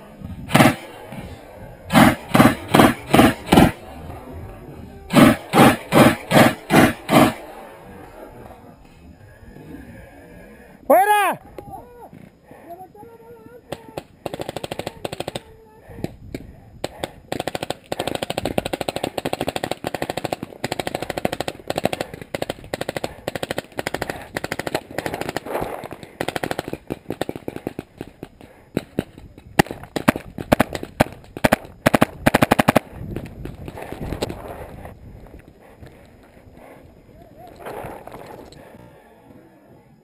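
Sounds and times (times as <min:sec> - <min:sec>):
paintball markers firing: 0:00.5 - 0:07.8, 0:13.7 - 0:16.2, 0:16.8 - 0:34.4.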